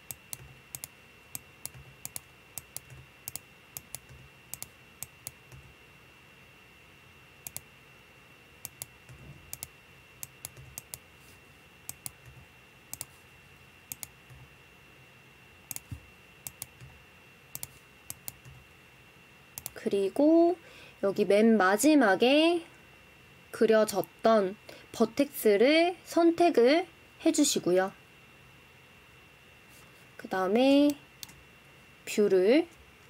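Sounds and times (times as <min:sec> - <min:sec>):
computer mouse clicks: 0:00.0 - 0:05.7, 0:07.4 - 0:07.7, 0:08.6 - 0:11.0, 0:11.9 - 0:13.2, 0:13.9 - 0:14.4, 0:15.7 - 0:16.9, 0:17.5 - 0:18.6, 0:19.6 - 0:19.8.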